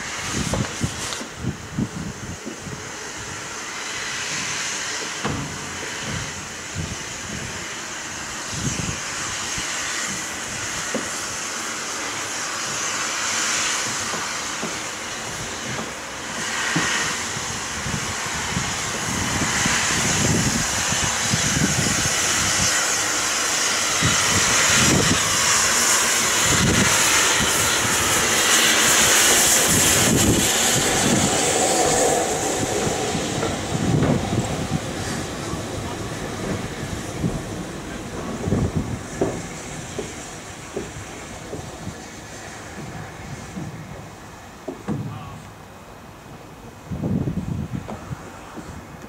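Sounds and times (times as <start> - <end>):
steam hissing: 0.0 - 49.0
steam locomotive exhaust chuffs: 0.0 - 49.0.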